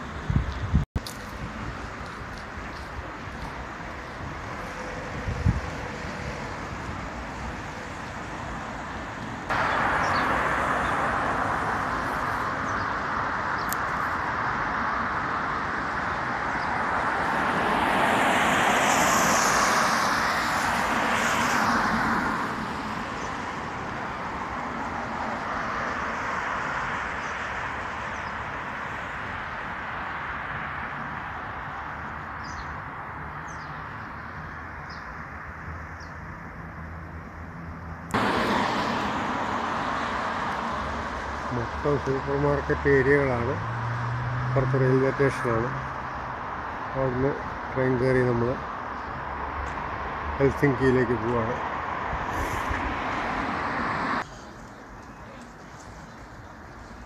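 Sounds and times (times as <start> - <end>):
road traffic hiss: 0.0 - 57.0
vehicle passing close: 9.5 - 27.1, 36.8 - 46.1.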